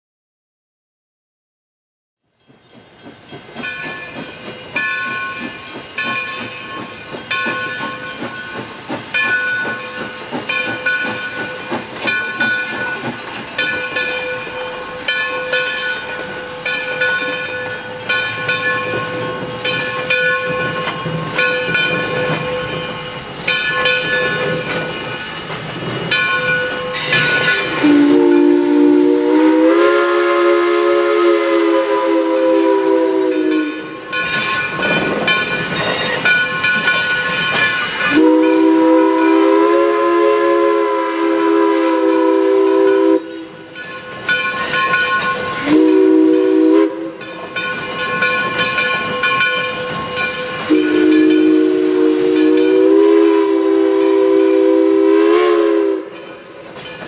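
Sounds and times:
locomotive bell ringing: 0:02.4 - 0:39.8, 0:41.3 - 0:57.0
steam hiss: 0:02.6 - 0:57.0
steam whistle chord: 0:26.9 - 0:34.1, 0:38.1 - 0:43.7, 0:45.6 - 0:47.3, 0:50.6 - 0:56.2.

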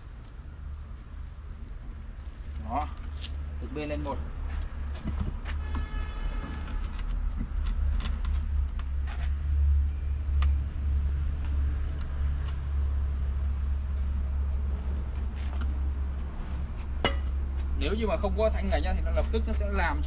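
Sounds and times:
steady low rumble: 0:06.6 - 0:20.0.

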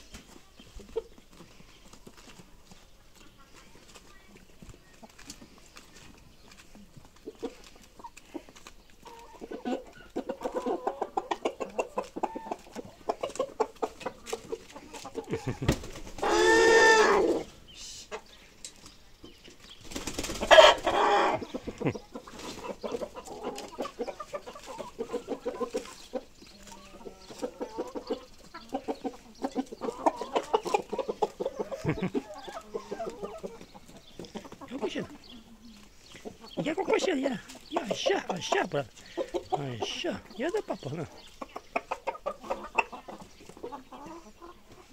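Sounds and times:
chickens clucking: 0:00.0 - 0:44.9
chicken squawking: 0:09.0 - 0:17.5, 0:20.4 - 0:26.2, 0:26.8 - 0:44.5.

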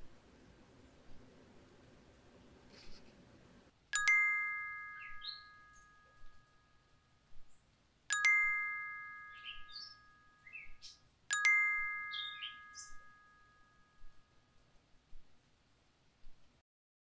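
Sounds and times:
synthetic bell dings: 0:04.0 - 0:07.1, 0:08.1 - 0:14.6
short chirping glides: 0:04.0 - 0:14.8.

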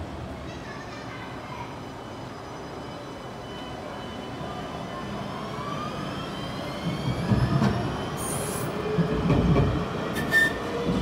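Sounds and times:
wheel squeals: 0:10.2 - 0:10.8.

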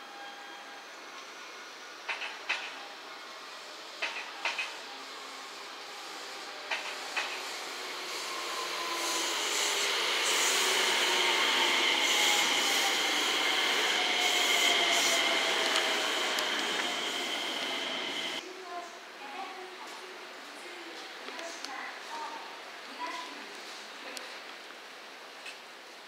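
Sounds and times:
electric train inverter whining: 0:03.4 - 0:18.4
wheel and rail running noise: 0:06.6 - 0:18.4.

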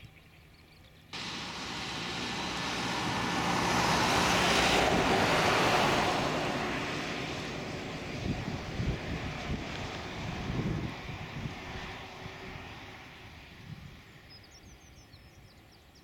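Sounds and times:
jet engines roaring: 0:01.2 - 0:13.4.

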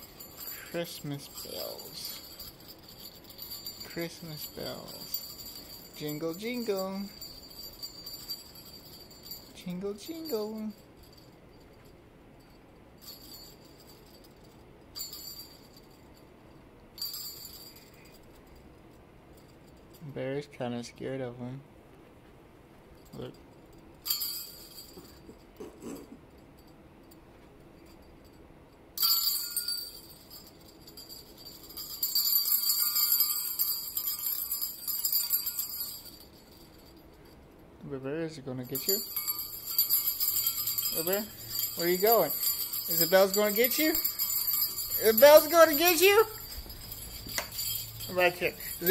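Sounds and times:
small jingle bells shaken: 0:00.0 - 0:16.3, 0:17.0 - 0:20.2, 0:23.0 - 0:28.4, 0:29.0 - 0:37.6, 0:38.6 - 0:48.9.

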